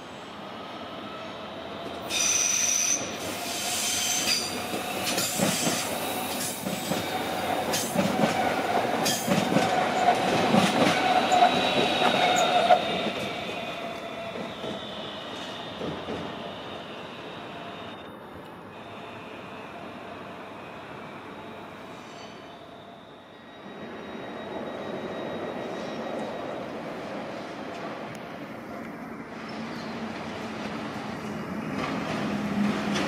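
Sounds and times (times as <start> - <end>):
train wheels squealing: 0.0 - 18.1, 20.6 - 27.4.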